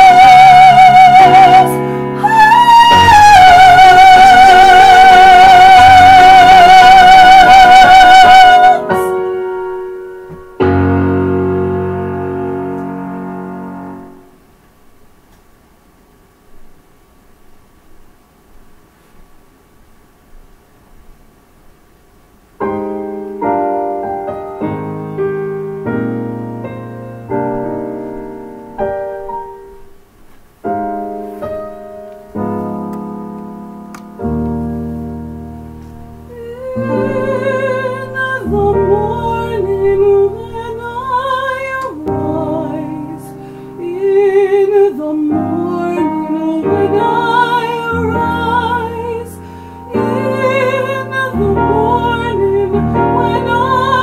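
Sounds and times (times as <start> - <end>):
woman singing with vibrato: 0.0 - 9.3, 36.2 - 54.0
piano chords: 0.0 - 15.1, 22.5 - 54.0.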